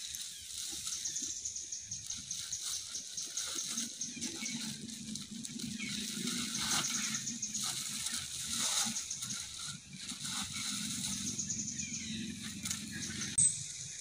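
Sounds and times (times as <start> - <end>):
low hum: 3.4 - 14.0.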